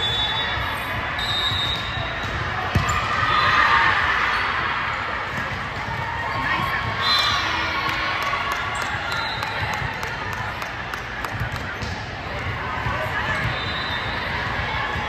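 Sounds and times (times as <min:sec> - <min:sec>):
sneakers squeaking on court: 0:01.6 - 0:03.1.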